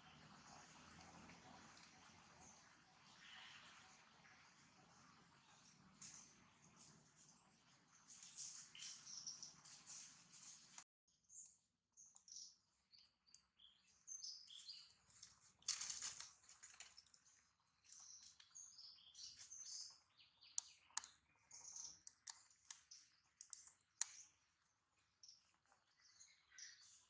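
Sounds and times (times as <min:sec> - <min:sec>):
small birds chirping: 0:00.0 - 0:27.0
brief rustle: 0:15.1 - 0:17.2.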